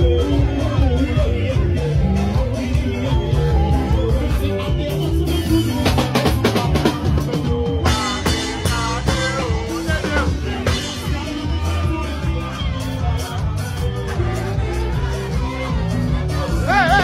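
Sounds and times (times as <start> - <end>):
upbeat praise music with drums: 0.0 - 17.0.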